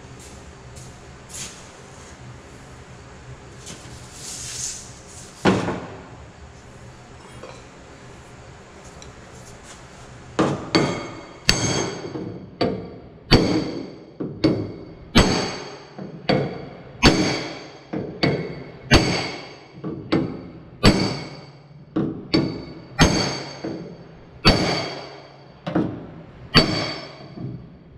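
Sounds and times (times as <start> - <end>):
hammer blows on sheet steel: 13.3 - 20.2, 22.3 - 25.4.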